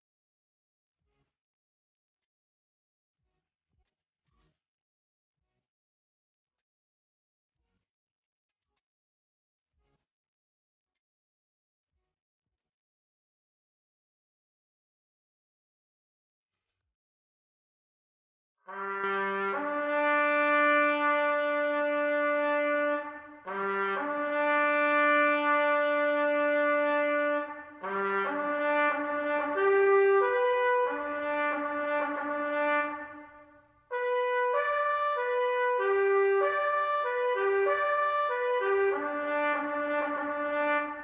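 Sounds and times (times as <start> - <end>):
brass melody music: 18.7 - 41.0.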